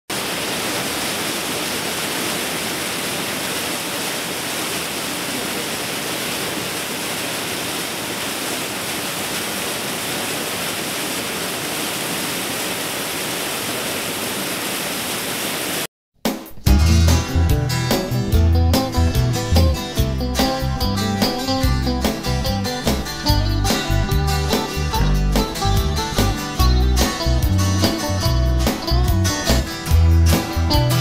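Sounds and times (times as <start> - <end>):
waterfall rushing into pool: 0.1 - 15.9.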